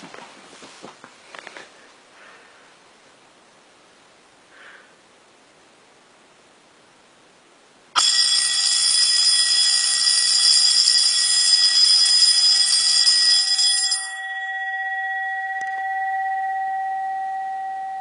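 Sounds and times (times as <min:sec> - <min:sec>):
fire alarm bell ringing: 0:08.0 - 0:18.0
gong ringing on: 0:13.8 - 0:18.0.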